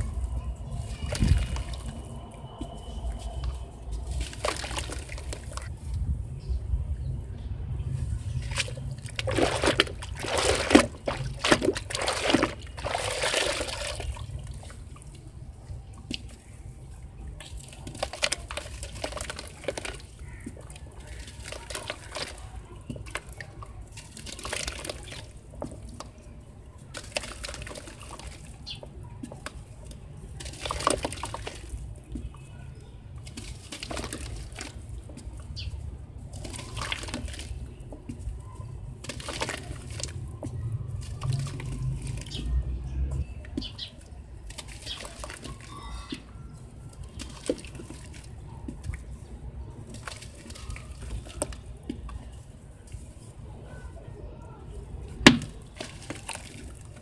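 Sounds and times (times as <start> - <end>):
water splashing and sloshing: 0.0 - 57.0
steady low rumble: 5.2 - 12.0.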